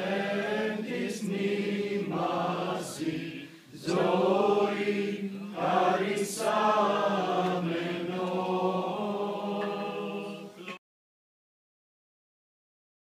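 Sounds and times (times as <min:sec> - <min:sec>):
group chanting with drone: 0:00.0 - 0:10.8.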